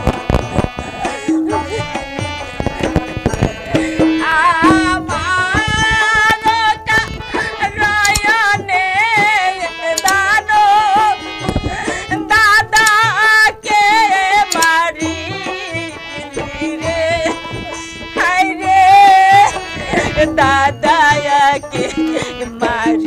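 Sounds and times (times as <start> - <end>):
held drone note: 0.0 - 8.7
hand drum beats: 0.0 - 23.0
woman singing in a high voice: 3.2 - 23.0.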